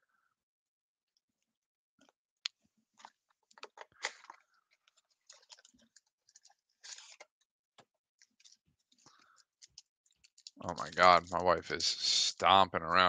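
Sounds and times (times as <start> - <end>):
foil and cardboard crinkling: 10.6 - 11.4.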